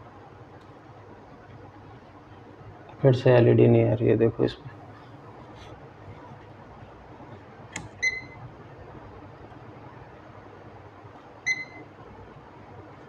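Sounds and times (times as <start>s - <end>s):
sharp click: 7.7s - 8.0s
multimeter beeping: 8.0s - 8.4s, 11.4s - 11.8s.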